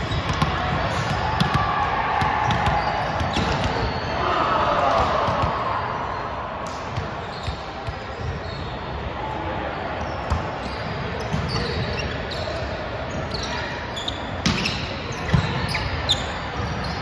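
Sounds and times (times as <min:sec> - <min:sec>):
balls bouncing on gym floor: 0:00.0 - 0:03.9, 0:14.4 - 0:15.6.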